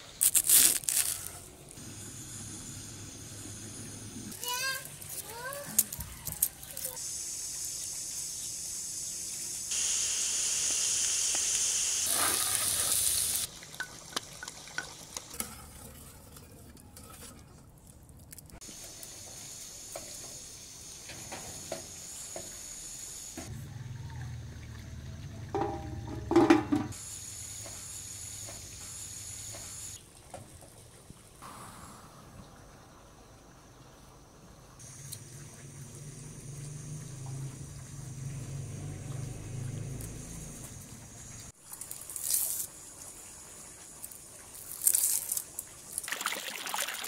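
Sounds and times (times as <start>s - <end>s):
water running and splashing: 10.4s - 16.4s, 32.5s - 47.0s.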